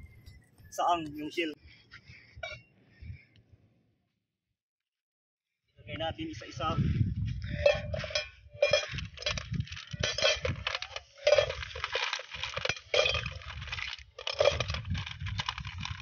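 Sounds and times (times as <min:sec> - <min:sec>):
shells clinking in metal pot: 0:07.6 - 0:16.0.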